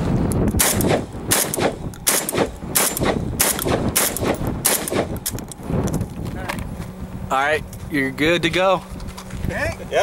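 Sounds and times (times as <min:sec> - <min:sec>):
shotgun shots ringing out: 0:00.6 - 0:05.2.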